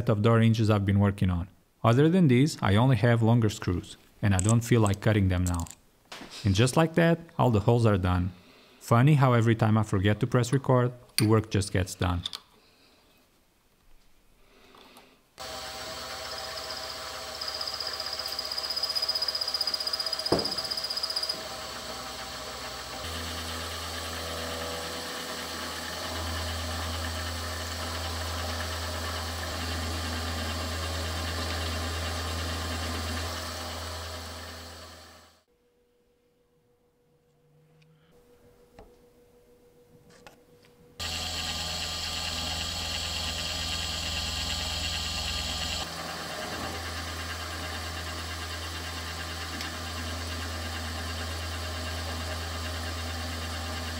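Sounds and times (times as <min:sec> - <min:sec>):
milling machine cutting metal: 0:15.4 - 0:35.2, 0:41.0 - 0:53.9.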